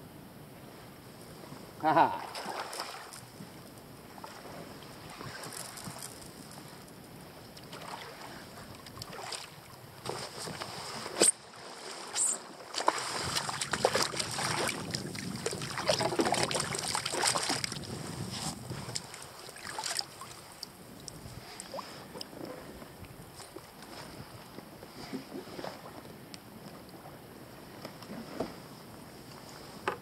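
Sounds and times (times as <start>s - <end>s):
fish splashing in water: 12.6s - 17.9s.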